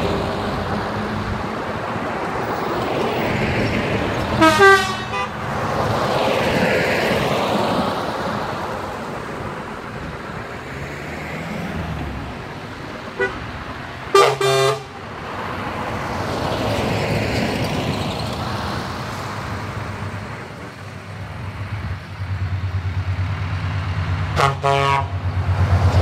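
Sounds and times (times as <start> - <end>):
heavy trucks driving past: 0.0 - 26.0
truck horn blasts: 4.4 - 5.4, 13.2 - 13.4, 14.1 - 15.0, 24.3 - 25.2.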